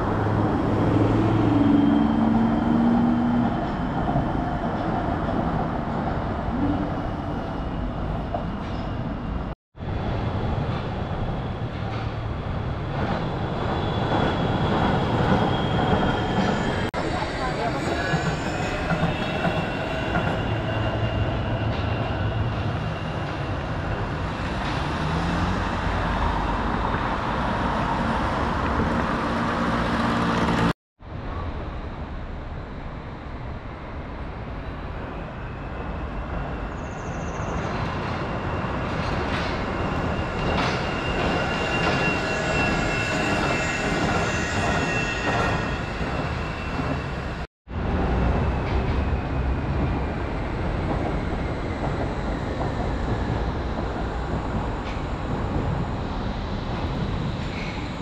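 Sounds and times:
monorail wheels rumbling on rail: 0:00.0 - 0:58.0
high thin squeal: 0:39.4 - 0:47.3.

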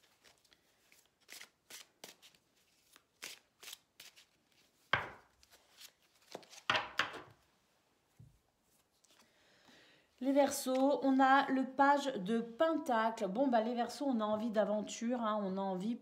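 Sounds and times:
cards being shuffled: 0:00.0 - 0:07.3.

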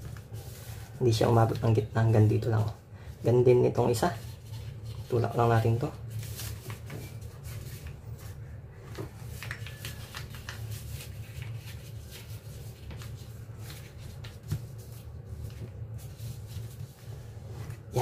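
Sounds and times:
low background hum: 0:00.0 - 0:18.0
paper crinkling and rustling: 0:03.9 - 0:18.0.

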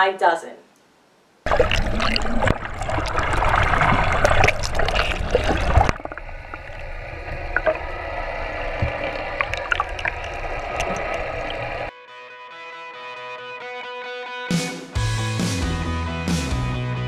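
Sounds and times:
faint steady underwater tones: 0:01.1 - 0:11.9
rushing bubbling water underwater: 0:01.4 - 0:11.9.

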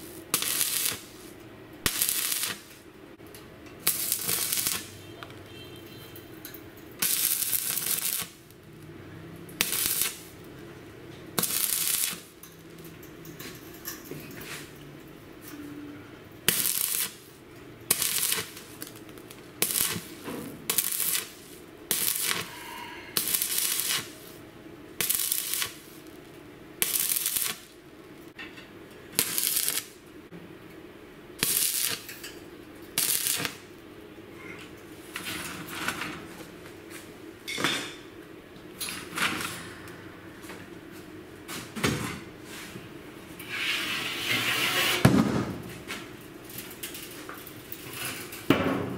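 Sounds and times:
welding arc bursts: 0:00.0 - 0:02.8, 0:03.8 - 0:05.1, 0:07.0 - 0:08.6, 0:09.5 - 0:10.4, 0:11.4 - 0:12.4, 0:16.4 - 0:24.4, 0:25.0 - 0:26.2, 0:26.8 - 0:27.8, 0:29.1 - 0:30.0, 0:31.4 - 0:32.2, 0:33.0 - 0:33.7.

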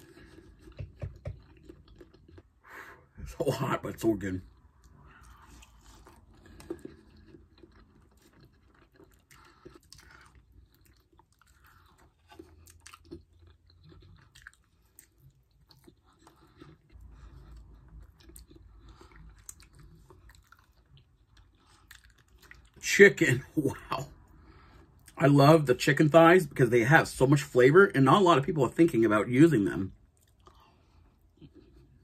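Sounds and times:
faint chewing and biting: 0:00.0 - 0:22.9, 0:29.6 - 0:32.0
mouth clicks and smacks: 0:00.2 - 0:02.5.

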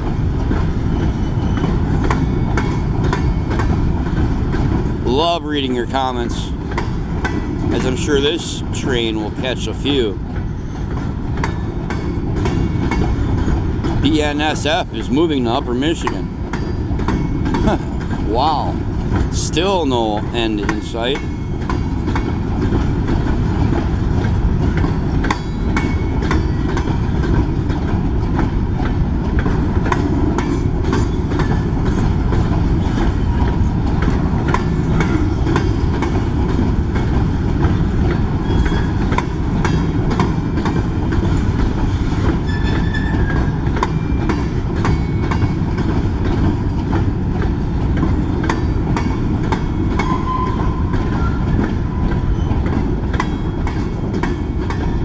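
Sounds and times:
freight train rumbling past: 0:00.0 - 0:55.0
wheels clacking over rail joints: 0:00.0 - 0:55.0
high wheel squeals: 0:00.9 - 0:02.6, 0:10.5 - 0:11.0, 0:38.4 - 0:39.0, 0:42.4 - 0:44.4, 0:49.9 - 0:52.7.

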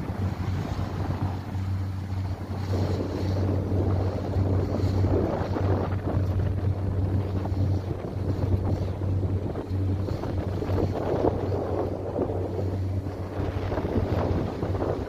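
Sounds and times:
boat engine droning: 0:00.0 - 0:15.0
wind buffeting microphone: 0:00.0 - 0:15.0.

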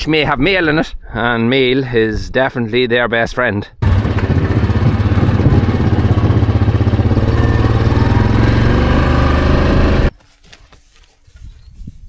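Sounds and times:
vehicle engine pulsing: 0:03.8 - 0:10.1.

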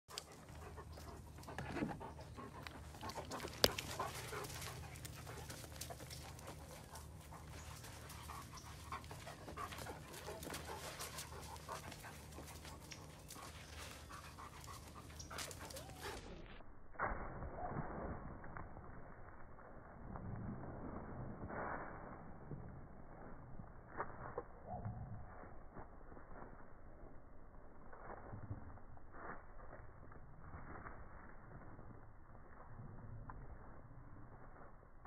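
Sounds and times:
dog panting: 0:00.1 - 0:16.4
steps on dirt path: 0:00.1 - 0:16.6.

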